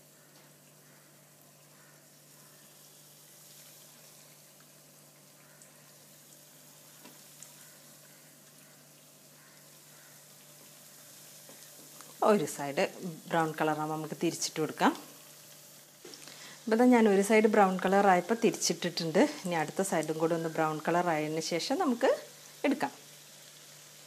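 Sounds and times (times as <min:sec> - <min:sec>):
cutlets sizzling in hot oil: 0:00.0 - 0:24.0.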